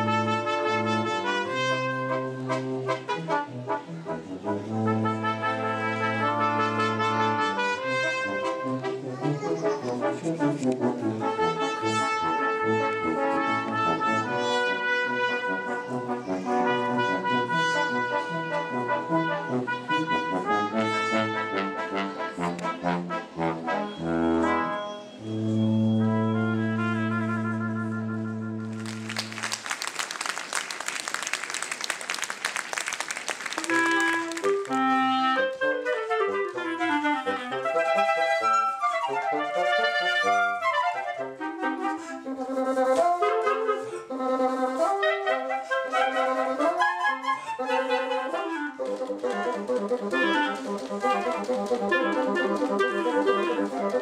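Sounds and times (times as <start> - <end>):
brass ensemble playing: 0.0 - 54.0
applause: 28.6 - 35.0.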